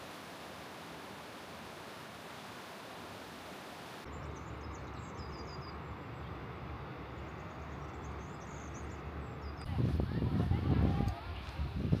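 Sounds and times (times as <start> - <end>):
rushing river water: 0.0 - 4.1
small birds chirping: 7.2 - 9.7.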